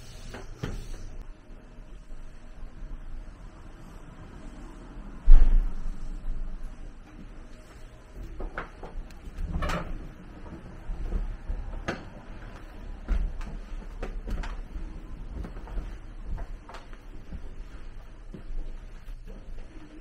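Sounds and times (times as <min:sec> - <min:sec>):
footsteps on wooden floor: 0:10.3 - 0:19.8.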